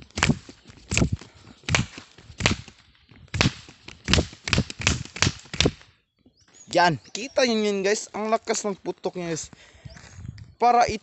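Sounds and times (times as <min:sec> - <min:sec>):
toy rifle firing sharp cracks: 0:03.4 - 0:05.8.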